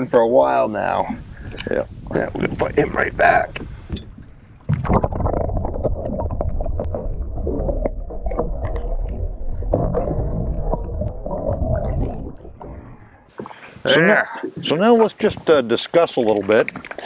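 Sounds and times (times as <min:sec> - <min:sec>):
underwater rumble of moving water: 0:00.0 - 0:13.4
bubbles crackling and clicking: 0:01.4 - 0:13.5, 0:16.0 - 0:17.0.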